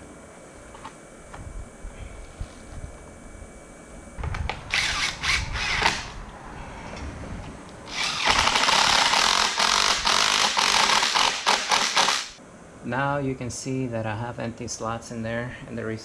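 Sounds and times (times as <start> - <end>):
cordless drill drilling metal: 4.7 - 6.1, 7.9 - 12.4.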